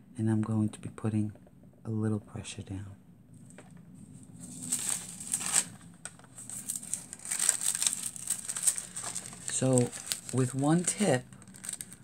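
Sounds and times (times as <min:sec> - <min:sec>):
foil and paper crinkling: 0:04.4 - 0:12.0.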